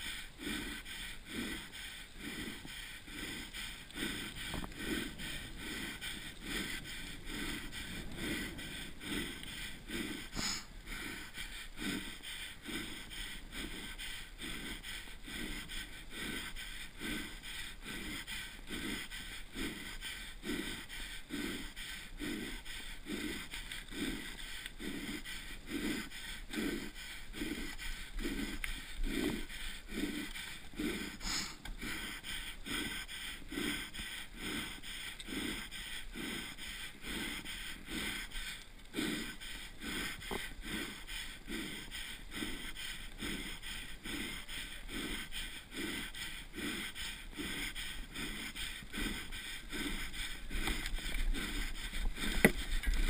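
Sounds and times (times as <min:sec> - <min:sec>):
wind and tyres on concrete: 0:00.0 - 0:35.6, 0:36.5 - 0:53.0
heavy laboured breathing: 0:00.0 - 0:53.0.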